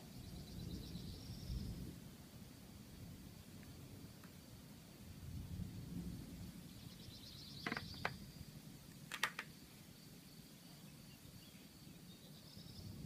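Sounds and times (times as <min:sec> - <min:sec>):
distant thunder rumble: 0:02.9 - 0:09.4
insects chirring: 0:06.3 - 0:13.0
sharp clicks: 0:08.9 - 0:09.5.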